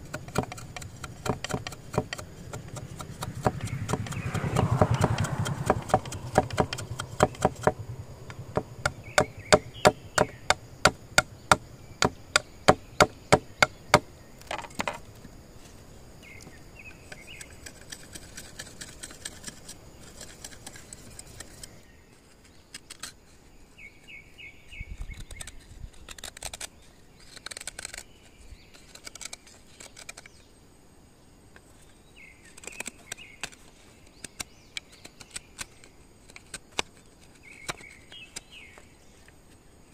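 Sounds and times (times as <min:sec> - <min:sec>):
bamboo being chopped: 0:00.0 - 0:14.9.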